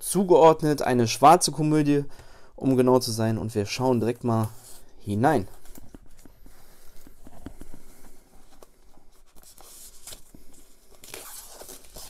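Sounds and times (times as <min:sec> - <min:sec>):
packaging scratching and rustling: 0:05.6 - 0:12.0.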